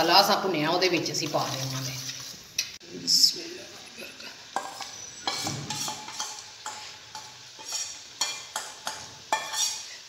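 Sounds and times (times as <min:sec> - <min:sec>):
frying mixture sizzling: 0:00.0 - 0:10.0
spatula stirring and scraping: 0:01.0 - 0:02.8, 0:04.5 - 0:10.0.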